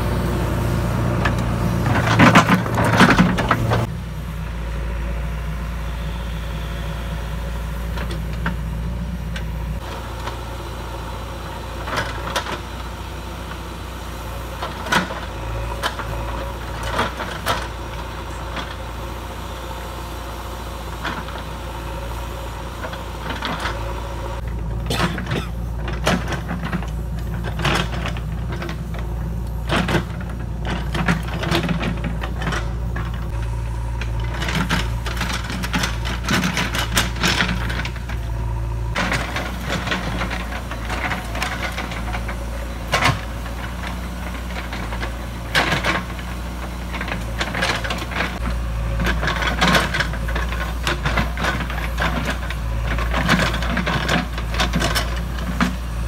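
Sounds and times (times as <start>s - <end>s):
diesel engine running: 0.0s - 56.0s
clanks and rattles of bucket: 1.8s - 3.9s, 24.8s - 33.3s, 39.0s - 56.0s.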